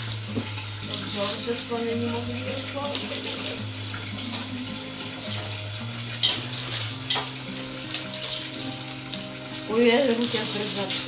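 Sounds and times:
wrapping paper rustling: 0.8 - 11.0.

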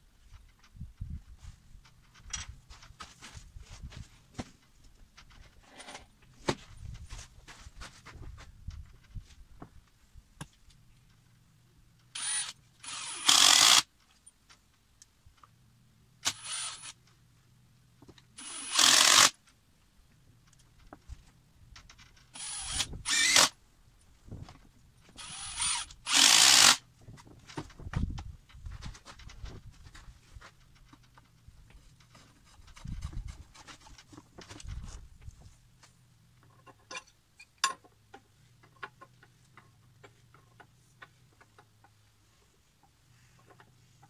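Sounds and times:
impact driver driving screws into wood: 12.1 - 13.9, 16.2 - 17.0, 18.4 - 19.4, 22.3 - 23.6, 25.2 - 26.9.

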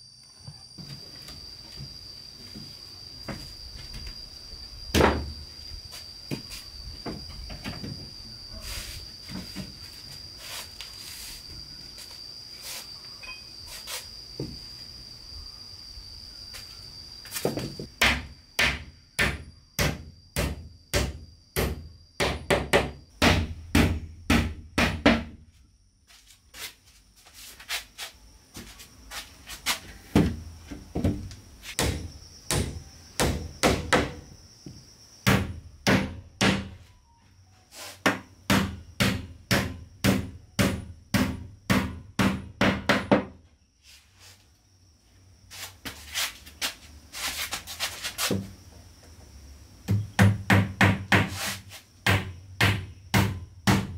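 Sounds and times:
hammer nailing wooden planks: 50.2 - 51.5.

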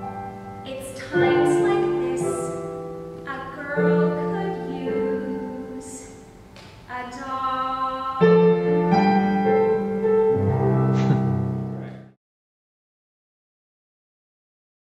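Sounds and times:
piano accompaniment: 0.0 - 12.2
woman singing: 0.6 - 6.2, 6.9 - 9.8.

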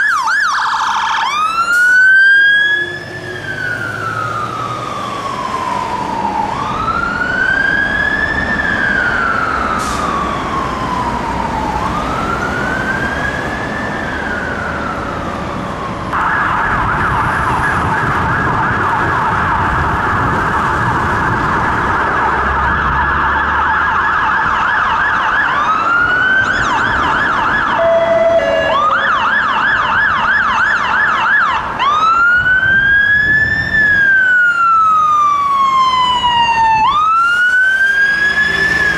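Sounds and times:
fire engine siren wailing: 0.0 - 38.9
fire engine siren yelping: 0.0 - 38.9
traffic noise: 0.0 - 38.9
low horn note: 27.8 - 29.0.

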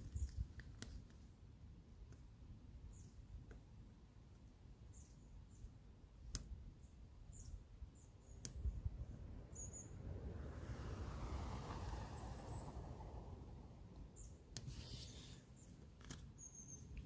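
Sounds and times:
sharp clicks: 6.2 - 6.6
paper pad rubbing: 14.6 - 15.5.

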